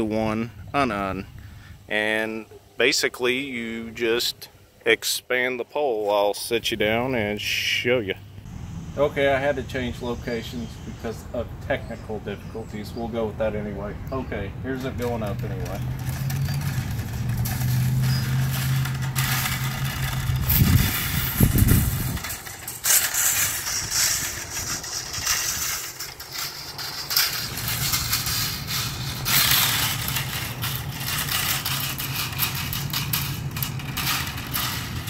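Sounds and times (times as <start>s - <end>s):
noisy hiss: 0.0s - 14.6s
knocks and rustles: 14.9s - 35.0s.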